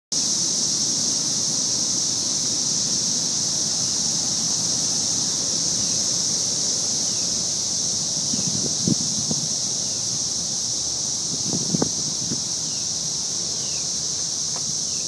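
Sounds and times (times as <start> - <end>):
cicadas singing: 0.1 - 15.0.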